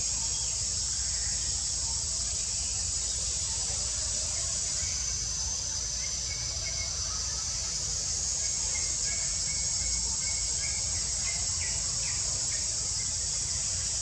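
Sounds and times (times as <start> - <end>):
high-pitched insect drone: 0.0 - 14.0.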